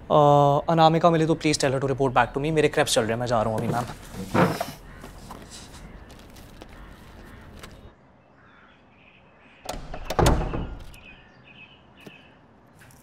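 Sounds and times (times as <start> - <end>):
knocks and thud: 9.7 - 11.0.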